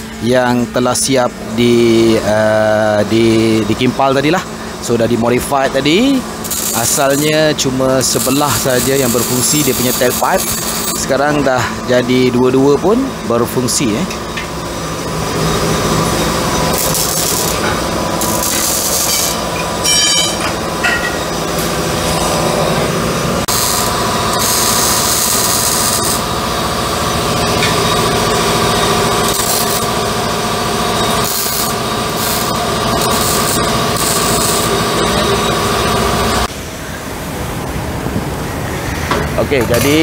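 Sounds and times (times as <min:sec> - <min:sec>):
steady hum: 0:00.0 - 0:40.0
welding arc crackling and hissing: 0:06.0 - 0:11.2, 0:15.0 - 0:19.9, 0:23.4 - 0:36.5.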